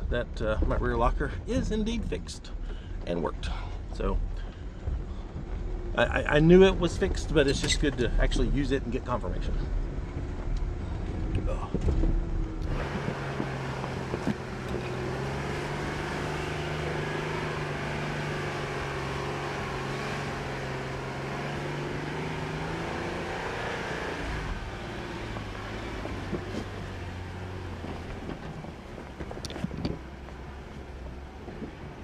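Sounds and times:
vehicle engine running: 0.0 - 32.0.

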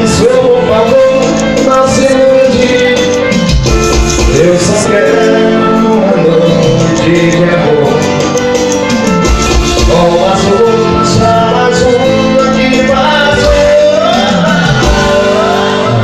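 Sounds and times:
latin pop song with singer: 0.0 - 16.0.

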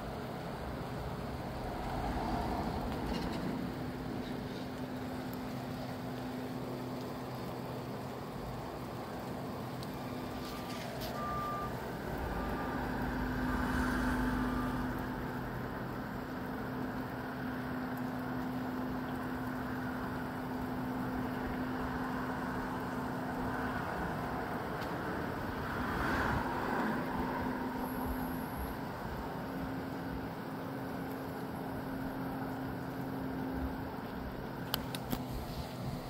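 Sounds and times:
gusty wind: 0.0 - 5.2
low engine hum: 0.0 - 36.0
rain shower: 0.0 - 36.0.

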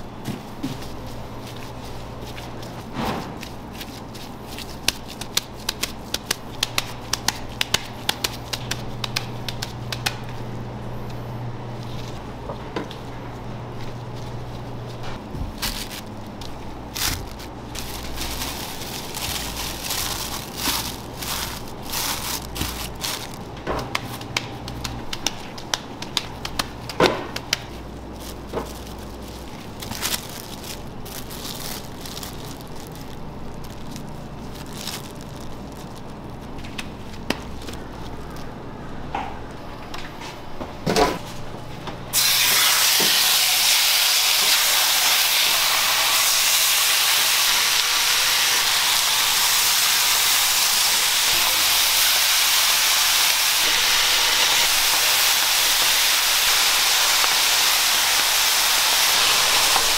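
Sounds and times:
low steady hum: 0.0 - 42.2
plastic sheet crinkling: 0.4 - 10.5, 11.8 - 38.6, 44.3 - 59.9.

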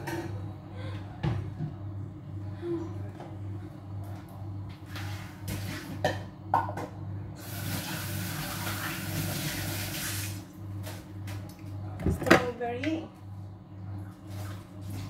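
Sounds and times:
tap water running into sink: 7.4 - 10.4.

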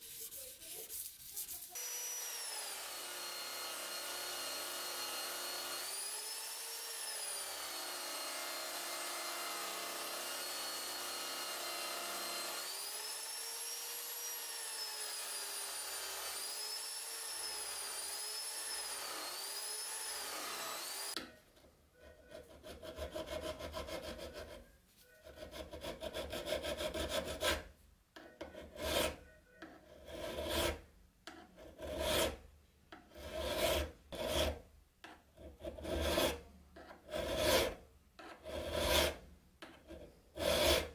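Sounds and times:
hand file scraping: 0.0 - 6.4, 22.0 - 27.7, 28.4 - 32.4, 33.0 - 34.6, 35.4 - 40.9.

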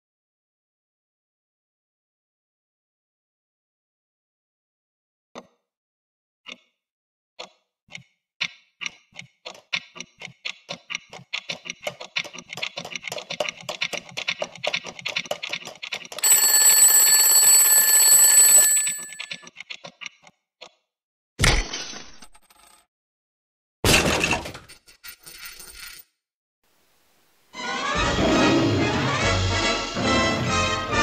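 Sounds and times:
alarm clock bells ringing: 16.2 - 19.4.

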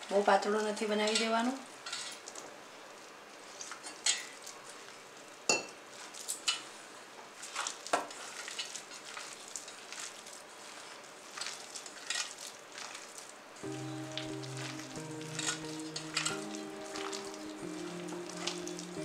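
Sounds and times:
hands squelching batter in bowl: 5.9 - 6.7, 7.4 - 19.0.

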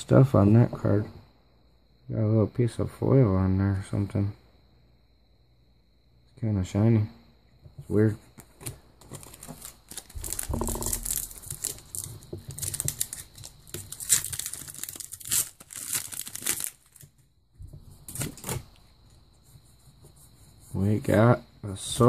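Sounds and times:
foil pack crinkling: 8.5 - 17.2.

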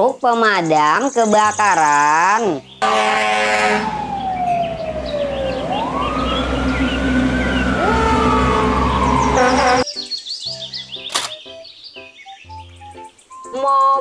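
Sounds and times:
fire engine siren wailing: 2.8 - 9.8
horn blaring: 2.8 - 9.8
low engine rumble: 2.8 - 9.8
second siren tone: 2.8 - 9.8.

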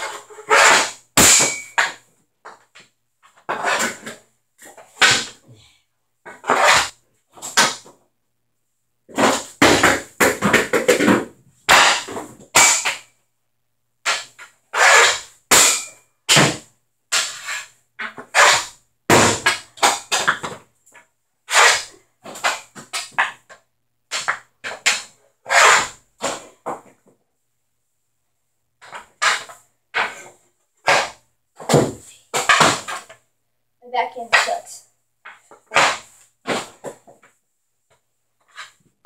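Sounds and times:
hockey stick striking pucks: 0.0 - 5.4, 6.3 - 8.0, 9.1 - 13.1, 14.1 - 20.7, 21.5 - 23.5, 24.1 - 26.9, 28.8 - 33.2, 34.1 - 37.3.

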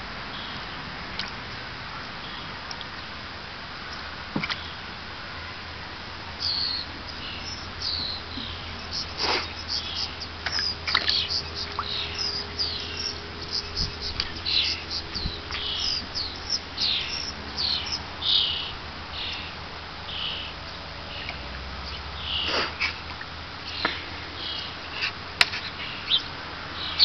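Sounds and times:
small songbirds chirping: 6.3 - 27.0.

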